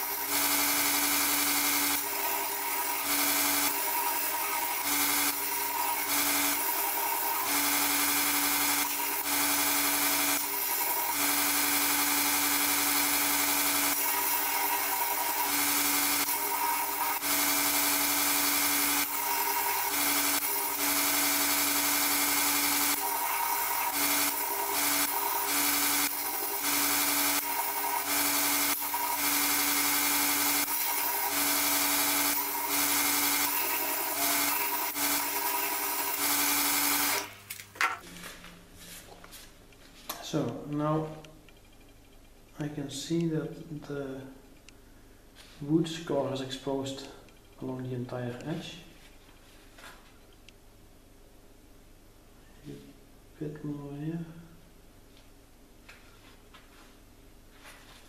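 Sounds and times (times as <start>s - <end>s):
belt grinder motor hum: 0.0s - 37.4s.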